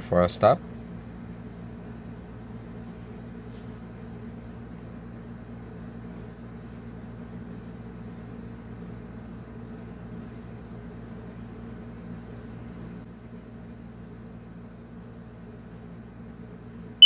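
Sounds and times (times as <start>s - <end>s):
low background hum: 0.0s - 17.0s.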